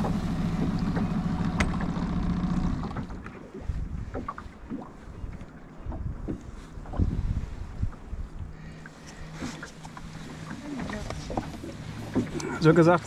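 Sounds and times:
motor humming: 0:00.0 - 0:03.2
water slapping against boat hull: 0:00.0 - 0:08.2, 0:08.8 - 0:13.0.

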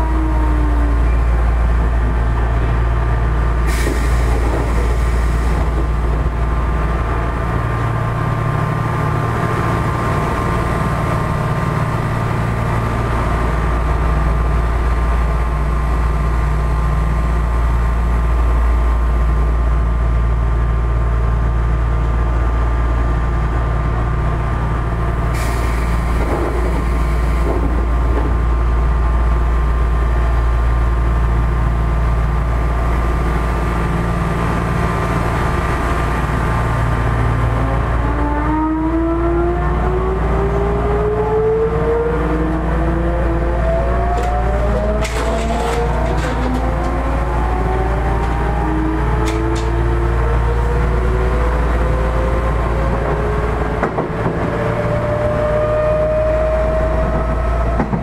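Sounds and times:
train air conditioning hum: 0:24.6 - 0:37.5, 0:42.2 - 0:55.4.

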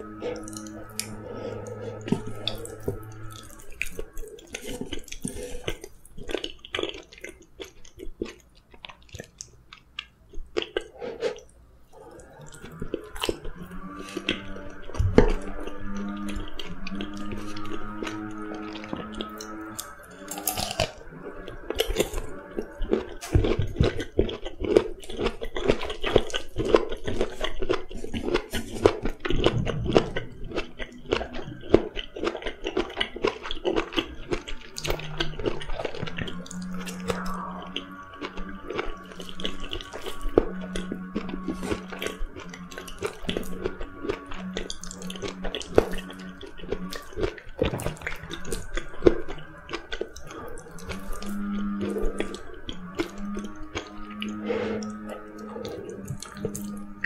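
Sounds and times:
crunchy carrot chewing: 0:00.0 - 0:57.0
soft wet chewing: 0:00.0 - 0:57.0.

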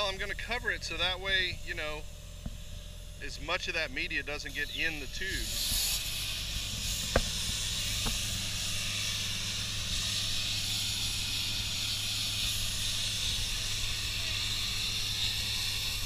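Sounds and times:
air compressor droning: 0:00.0 - 0:16.0
compressed air hissing: 0:04.5 - 0:16.0.

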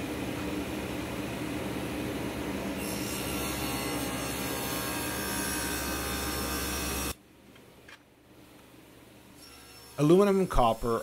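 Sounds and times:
table saw cutting metal: 0:02.8 - 0:07.2, 0:09.4 - 0:10.4.

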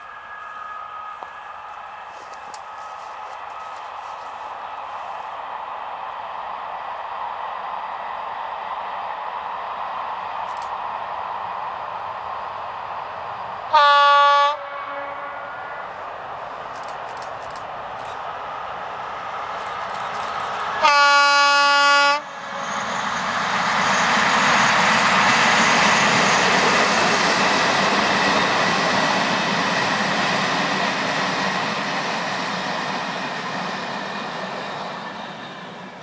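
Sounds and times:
locomotive horn blast: 0:13.7 - 0:15.5, 0:20.8 - 0:22.3
train wheels clattering on rails: 0:16.5 - 0:21.4, 0:22.5 - 0:36.0.

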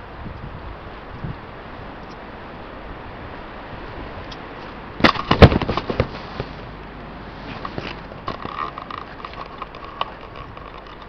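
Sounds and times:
camera clattering: 0:05.0 - 0:06.6, 0:07.4 - 0:11.0.

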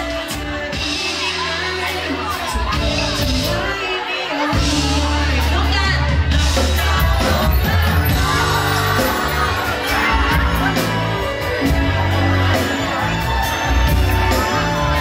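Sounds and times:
woman singing: 0:00.0 - 0:15.0
heavy bass line: 0:04.6 - 0:15.0.

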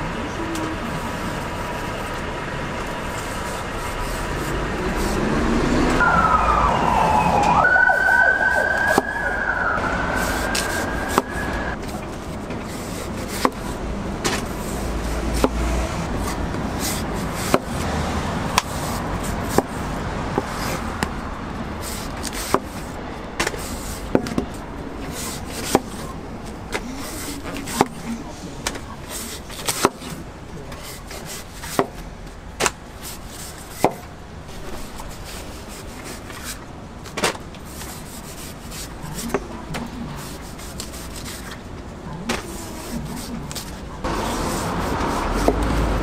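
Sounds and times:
street traffic: 0:00.0 - 0:46.0
emergency vehicle siren: 0:05.0 - 0:11.8.

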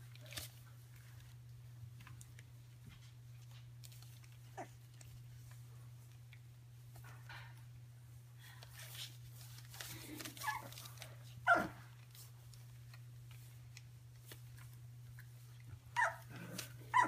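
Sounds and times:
puppy whimper: 0:10.4 - 0:10.8, 0:16.0 - 0:17.0
puppies squeaking: 0:16.0 - 0:16.3.

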